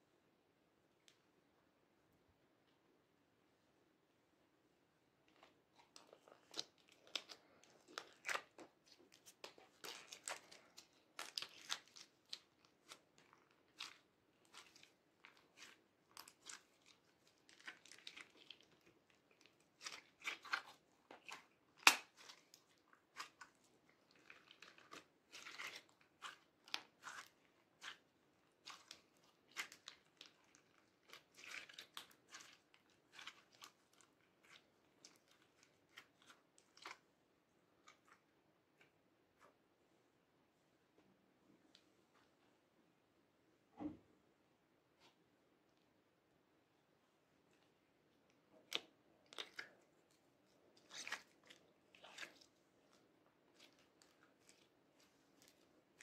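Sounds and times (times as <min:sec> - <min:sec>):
slime sticky crackles and pops: 0:06.0 - 0:28.0.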